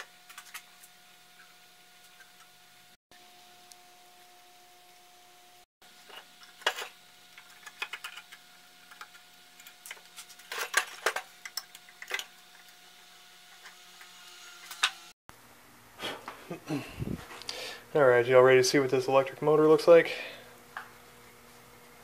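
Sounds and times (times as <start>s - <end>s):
metal parts clinking and knocking: 6.0s - 12.7s.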